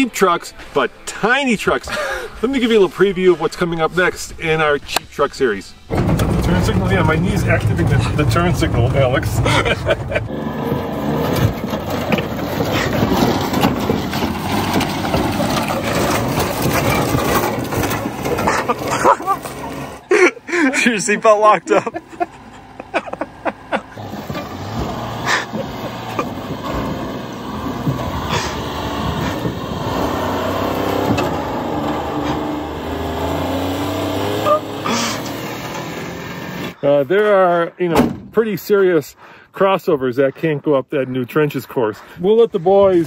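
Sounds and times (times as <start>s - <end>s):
truck knocking on logs: 5.9s - 20.0s, 22.0s - 36.3s, 38.0s - 38.4s
small truck engine running slowly: 5.9s - 36.8s.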